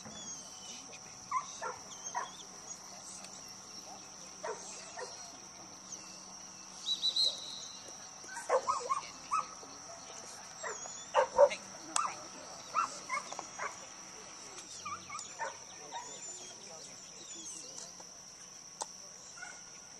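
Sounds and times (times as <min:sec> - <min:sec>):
dog barking and yipping: 0:01.3 - 0:02.4, 0:08.3 - 0:09.5, 0:10.6 - 0:13.8.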